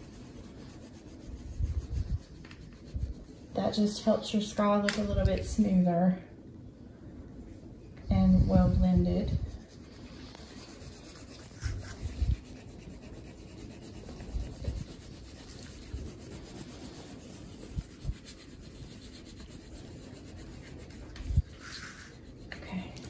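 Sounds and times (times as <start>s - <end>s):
wax crayon rubbing on paper: 0.0s - 3.6s, 8.5s - 23.0s.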